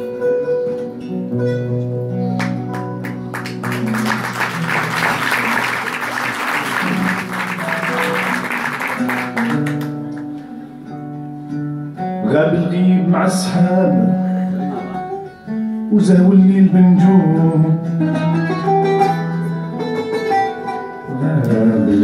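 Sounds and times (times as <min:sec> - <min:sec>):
mandole and acoustic guitar: 0:00.0 - 0:22.0
audience applause: 0:02.4 - 0:10.2.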